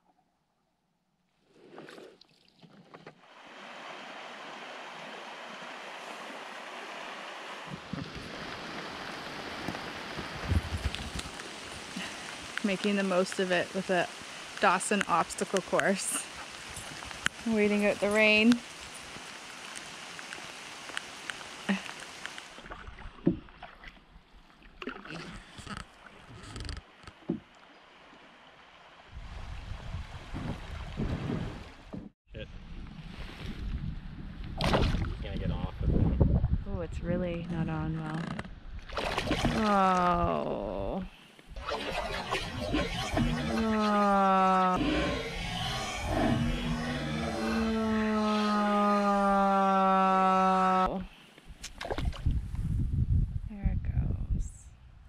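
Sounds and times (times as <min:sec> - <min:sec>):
rushing water: 0:01.8 - 0:32.1
rain hissing: 0:03.3 - 0:22.6
paddle knocking against hull: 0:22.6 - 0:23.8
low rumbling thumps: 0:29.2 - 0:38.7.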